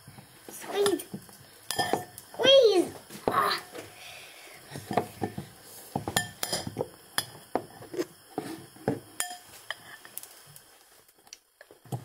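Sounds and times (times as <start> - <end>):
fork clinking against glass bowl: 9.2 - 9.5.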